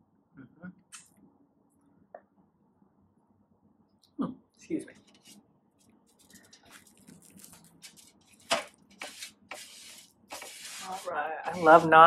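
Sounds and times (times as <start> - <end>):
bread tearing crackles: 6.0 - 8.5
bread rasping through sauce: 6.1 - 12.0.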